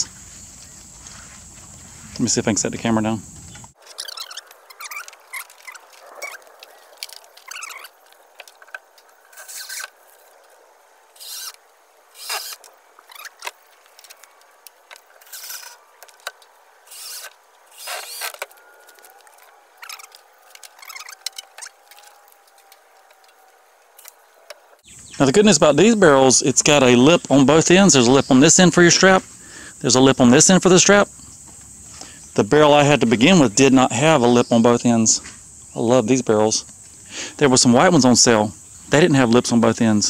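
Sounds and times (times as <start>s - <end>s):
scraping and handling sounds: 3.8s - 24.8s
cordless drill driving screws: 11.2s - 14.3s, 14.9s - 19.1s.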